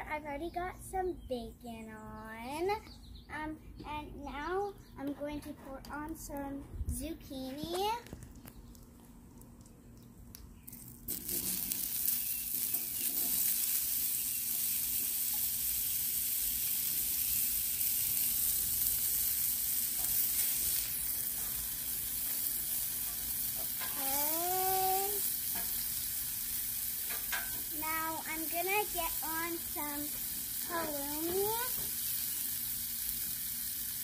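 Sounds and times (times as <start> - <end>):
zucchini sizzling on griddle: 10.6 - 34.0.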